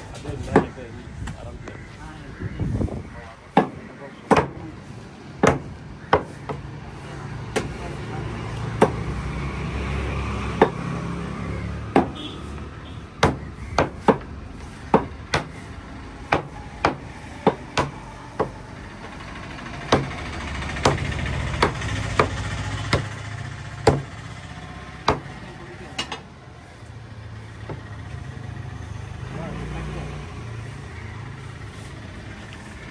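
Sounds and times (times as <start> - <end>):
vehicle engine rumbling: 0.0 - 32.9
cleavers chopping fish on wood: 0.4 - 1.8, 3.5 - 6.9, 7.5 - 9.2, 9.9 - 18.7, 19.8 - 23.2, 23.8 - 24.2, 25.0 - 25.4, 27.6 - 27.9.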